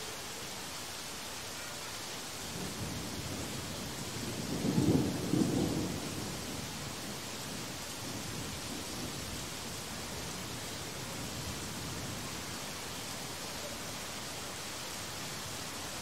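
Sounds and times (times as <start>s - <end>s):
steady rain falling: 0.0s - 16.0s
thunder rumble: 2.6s - 9.5s.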